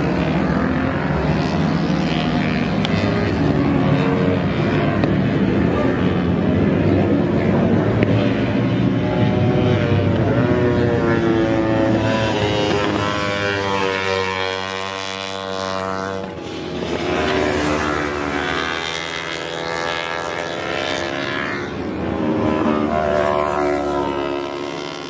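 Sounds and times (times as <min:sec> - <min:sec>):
motorcycles revving past: 0:00.0 - 0:25.0.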